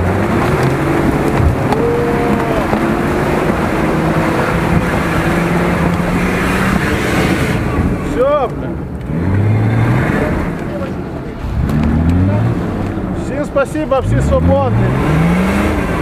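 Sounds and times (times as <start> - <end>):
off-road vehicle engine running: 0.0 - 16.0.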